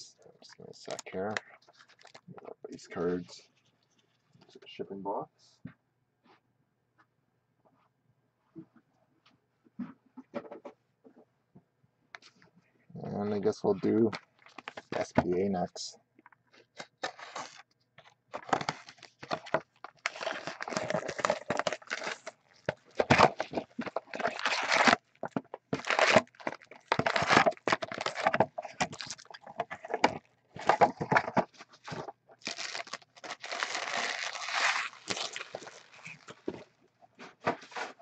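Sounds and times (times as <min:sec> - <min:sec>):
foil packs crinkling and rustling: 0:00.8 - 0:02.3, 0:13.8 - 0:15.2, 0:16.6 - 0:36.7.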